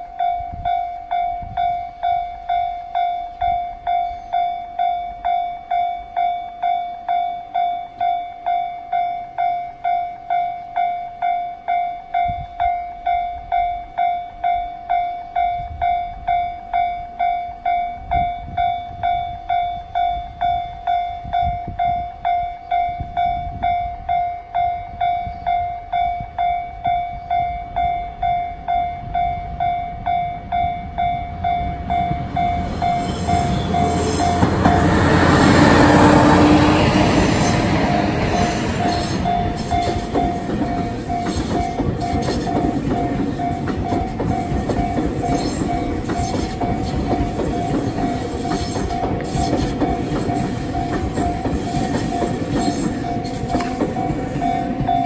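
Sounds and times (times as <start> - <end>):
train wheels clattering: 31.9 - 55.0.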